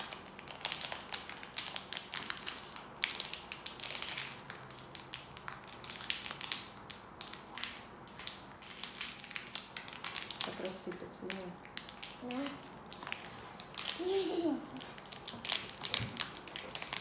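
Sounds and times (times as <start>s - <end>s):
glitter packet crinkling: 0.0s - 17.0s.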